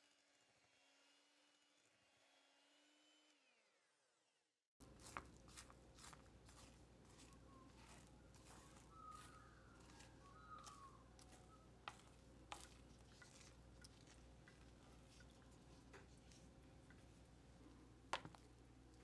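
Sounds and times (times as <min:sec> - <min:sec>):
spatula folding cake batter: 0:04.8 - 0:17.3
low steady hum: 0:04.8 - 0:19.0.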